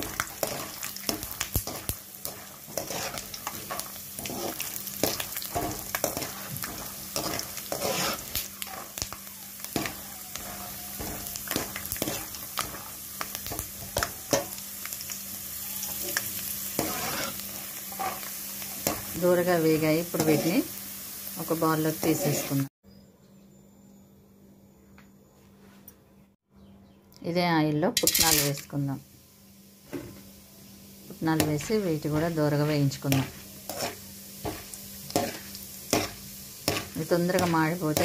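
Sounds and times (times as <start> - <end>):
skimmer scraping metal pan: 0.0 - 9.0
peanuts sizzling in hot oil: 0.0 - 22.7, 27.9 - 38.0.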